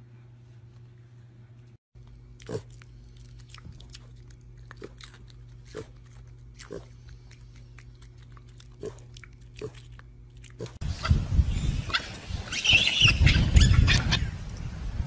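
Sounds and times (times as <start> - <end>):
piglet chewing: 2.0 - 10.8.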